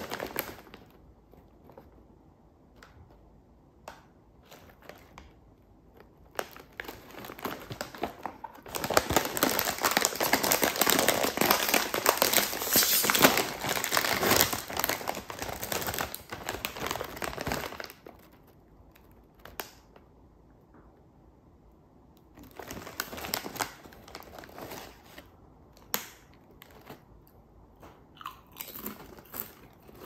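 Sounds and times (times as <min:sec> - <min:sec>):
foil chip bag crinkling: 0:00.0 - 0:02.0, 0:04.4 - 0:20.0, 0:22.4 - 0:25.4, 0:28.3 - 0:30.0.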